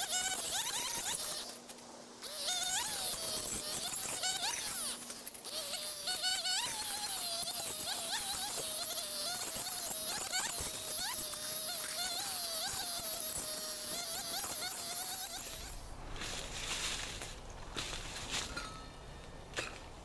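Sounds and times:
distant chainsaw buzzing: 0.0s - 16.0s.

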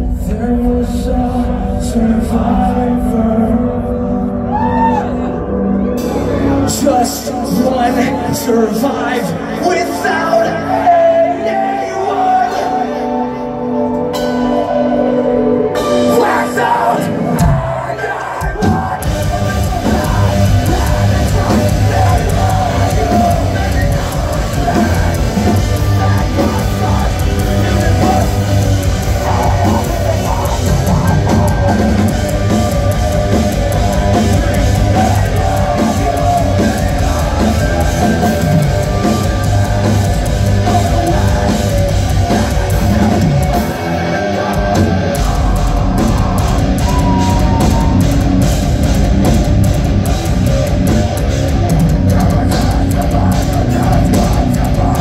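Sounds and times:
band vocals: 0.0s - 55.0s
distorted guitars: 0.0s - 55.0s
drums: 0.0s - 55.0s.

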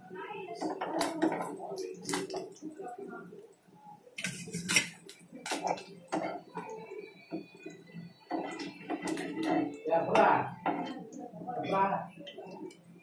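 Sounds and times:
hot oil sizzling: 4.2s - 13.0s.

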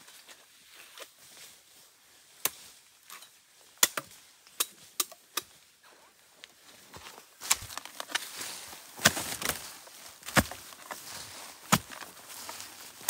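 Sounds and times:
blade chopping bamboo: 9.0s - 9.6s, 10.2s - 10.8s, 11.6s - 12.1s.

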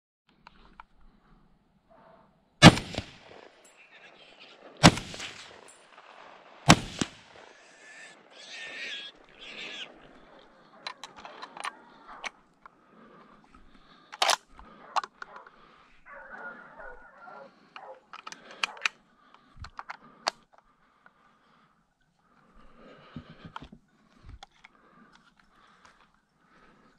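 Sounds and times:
rifle shots: 2.6s - 4.0s, 4.8s - 8.3s
rifle handling clicks and rustling: 10.5s - 12.8s, 13.5s - 15.6s, 17.8s - 20.7s, 23.5s - 26.2s.

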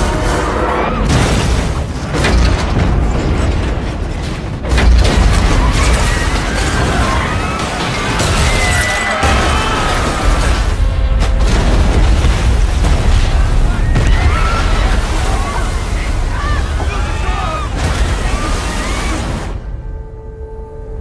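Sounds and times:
dramatic orchestral music: 0.0s - 3.2s
deep rumbling booms and crashing: 1.0s - 8.6s, 9.2s - 19.8s.

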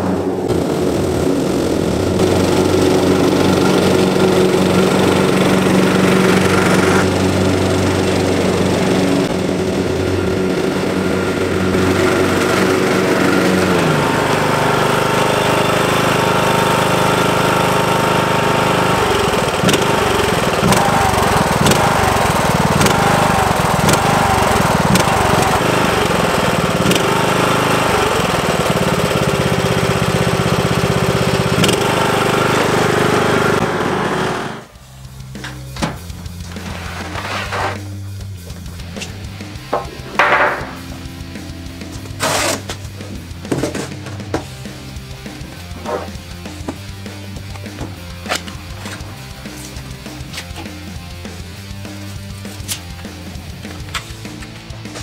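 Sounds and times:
riding lawn mower engine running: 0.0s - 55.0s
sharp clicks: 19.1s - 23.2s, 31.6s - 32.0s.

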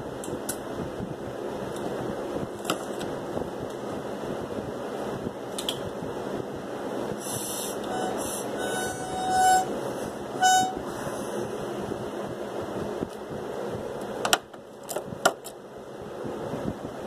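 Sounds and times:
plastic bottle spout whistling: 7.9s - 9.7s, 10.4s - 10.8s.

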